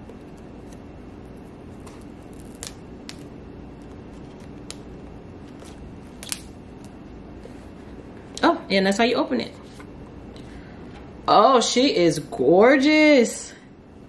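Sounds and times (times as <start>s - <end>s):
low room hum: 0.0s - 14.0s
paper tear strips pulled off: 1.9s - 3.2s.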